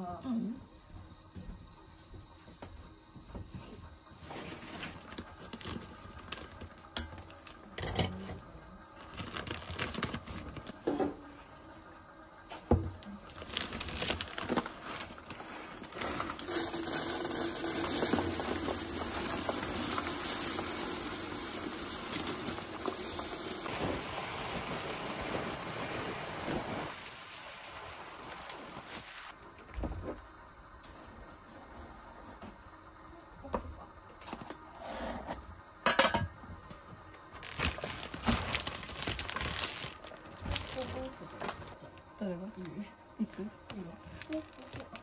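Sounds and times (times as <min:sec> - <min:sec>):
rice grains pouring: 0:13.3 - 0:29.4
bag clicks knocks and crinkles: 0:37.4 - 0:41.7.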